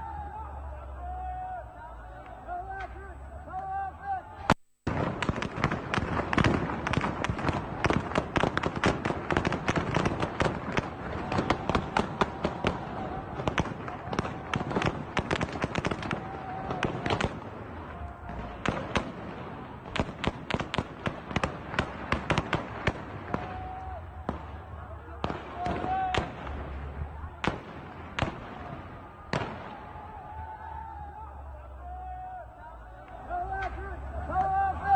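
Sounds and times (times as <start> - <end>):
heavy gunfire: 4.9 - 30.6.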